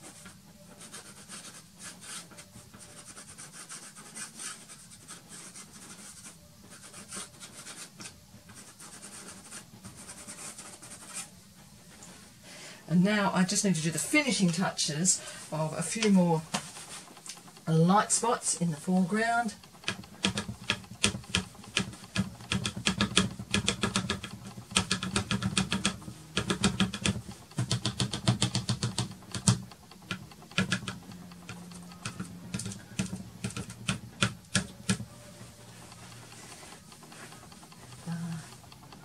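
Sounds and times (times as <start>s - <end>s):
pastel stick tapping on board: 19.7s - 35.1s.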